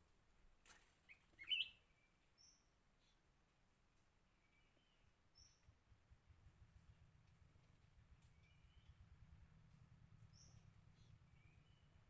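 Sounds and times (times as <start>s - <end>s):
small bird chirping: 1.0s - 3.3s, 4.3s - 5.8s, 6.8s - 12.0s.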